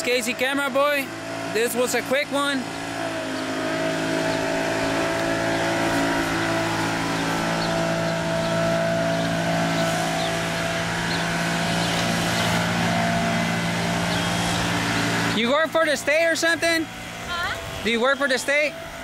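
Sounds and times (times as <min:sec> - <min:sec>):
vehicle engine idling: 0:00.0 - 0:19.0.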